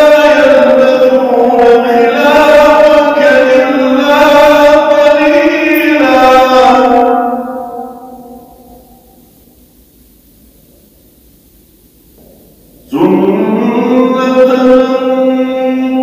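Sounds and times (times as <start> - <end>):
man reciting melodically: 0.0 - 8.0, 12.8 - 16.0.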